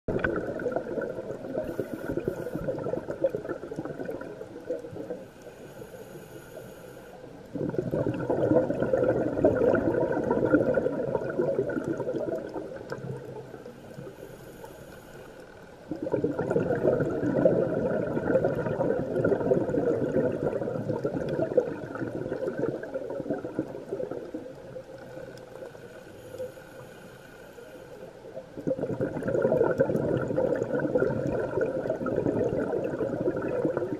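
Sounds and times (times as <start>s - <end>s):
scuba regulator bubbles gurgling: 0.1s - 6.8s, 7.4s - 33.9s.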